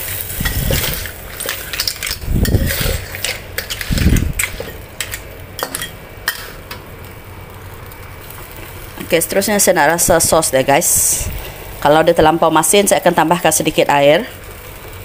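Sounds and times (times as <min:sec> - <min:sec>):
metal spatula scraping a wok: 0:00.0 - 0:06.6
light sizzle: 0:00.0 - 0:15.0.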